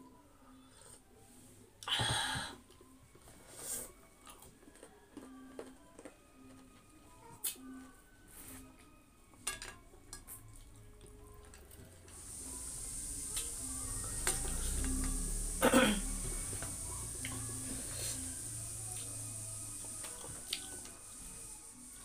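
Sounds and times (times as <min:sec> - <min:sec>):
chewing and mouth clicks: 0:04.2 - 0:06.1
steady hiss: 0:12.1 - 0:22.0.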